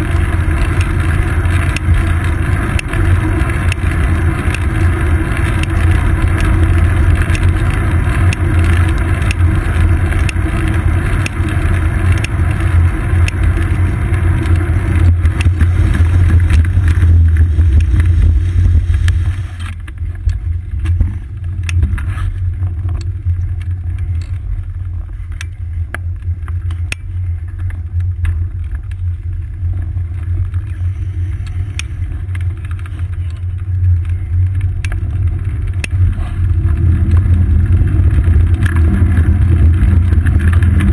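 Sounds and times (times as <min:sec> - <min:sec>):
bike clicks and knocks: 0:00.0 - 0:18.2, 0:18.9 - 0:40.9
wind and road rumble: 0:00.0 - 0:40.9.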